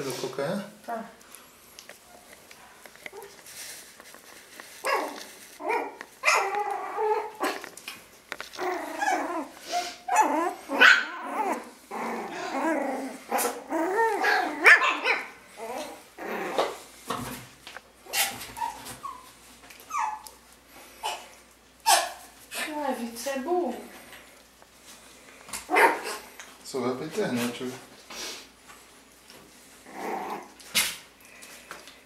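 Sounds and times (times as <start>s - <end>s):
puppies yapping and growling: 4.7s - 17.0s, 18.0s - 22.7s, 25.6s - 26.4s, 29.6s - 31.2s.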